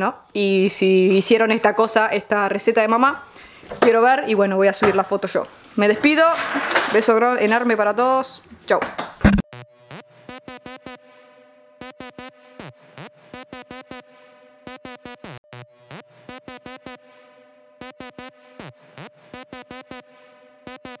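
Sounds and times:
electronic music with clipped beats: 0:09.2 - 0:11.1, 0:11.8 - 0:17.2, 0:17.8 - 0:21.0.

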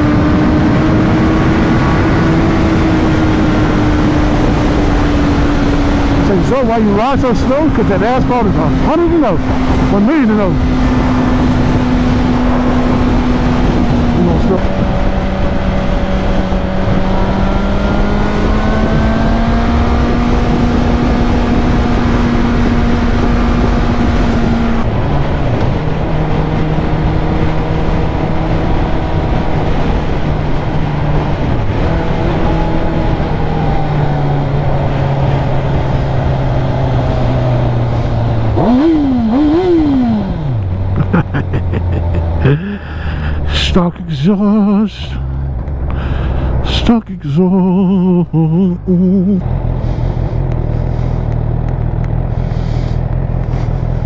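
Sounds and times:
wind rush: 0:00.0 - 0:44.1, 0:44.8 - 0:48.1
motorcycle engine running: 0:47.8 - 0:54.0.

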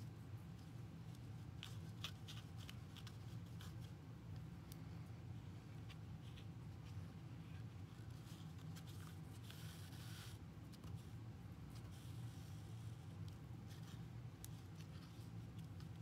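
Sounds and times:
steady low hum: 0:00.0 - 0:16.0
yarn rustling and scratching: 0:00.2 - 0:04.0.

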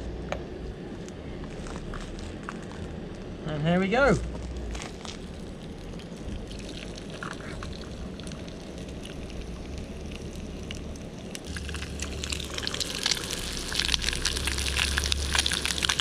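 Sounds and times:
fish sizzling in oil: 0:07.8 - 0:16.0.

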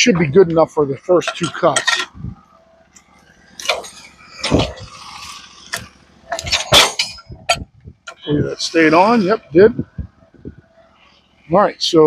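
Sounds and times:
steel parts knocking and clanking: 0:01.2 - 0:02.2, 0:05.7 - 0:08.2.

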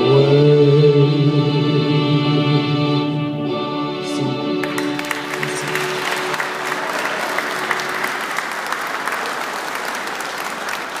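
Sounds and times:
held music chord: 0:01.2 - 0:08.4
audience applauding: 0:04.6 - 0:11.0.

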